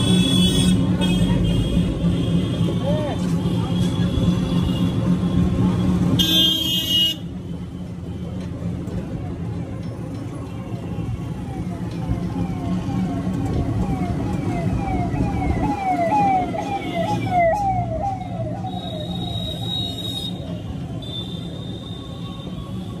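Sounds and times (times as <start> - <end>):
road rumble of moving vehicle: 0.0 - 23.0.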